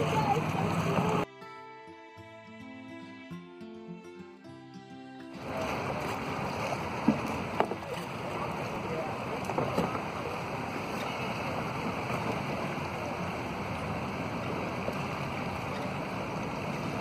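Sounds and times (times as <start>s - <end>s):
paddle splash: 0.0s - 1.3s, 5.4s - 17.0s
river water rushing: 0.0s - 1.3s, 5.3s - 17.0s.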